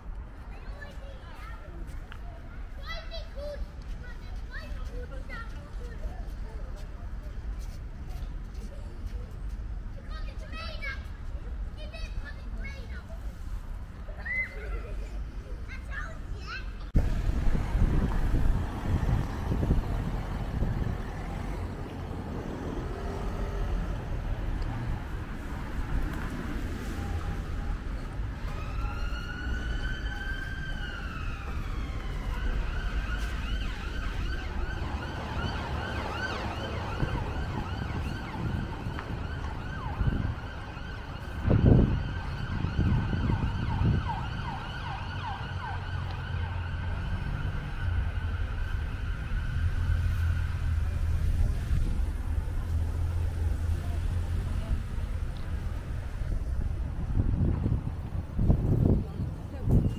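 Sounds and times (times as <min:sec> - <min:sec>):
wind rumbling on microphone: 0:16.9 - 0:22.9, 0:23.6 - 0:59.9
emergency vehicle siren: 0:17.0 - 0:56.1.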